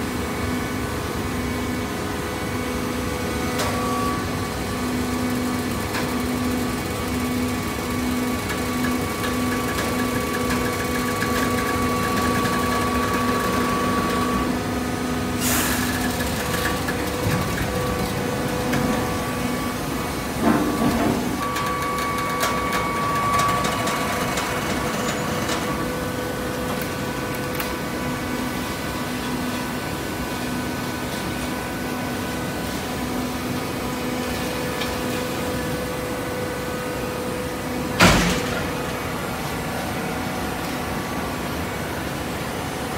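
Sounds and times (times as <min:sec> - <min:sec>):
hydraulic baler humming: 0:02.5 - 0:30.6.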